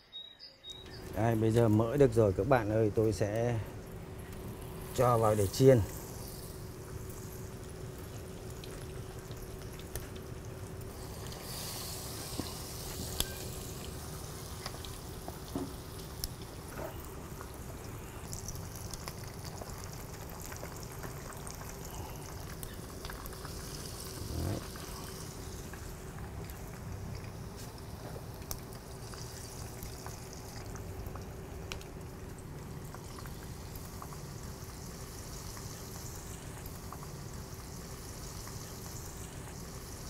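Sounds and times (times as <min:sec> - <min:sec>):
chicken deep-frying in hot fat: 0:00.0 - 0:40.0.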